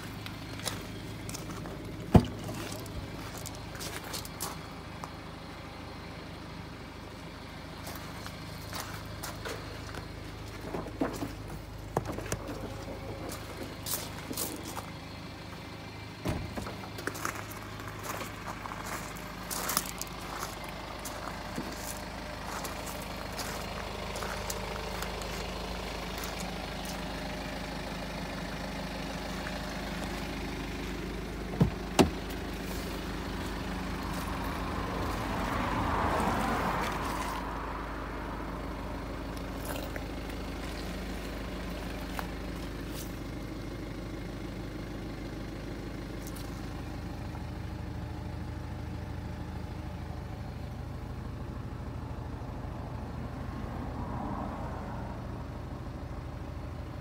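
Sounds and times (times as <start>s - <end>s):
diesel engine idling: 0.0s - 57.0s
car door knocks: 31.5s - 32.2s.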